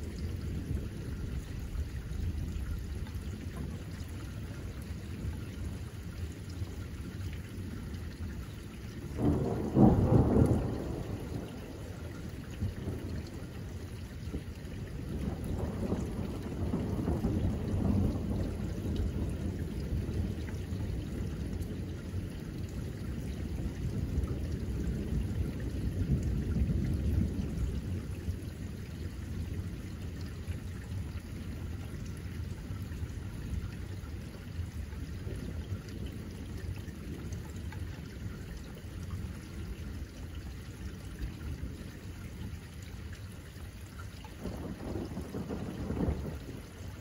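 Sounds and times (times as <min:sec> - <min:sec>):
steady rain falling: 0:00.0 - 0:47.0
rolling thunder rumble: 0:09.1 - 0:37.4, 0:44.3 - 0:47.0.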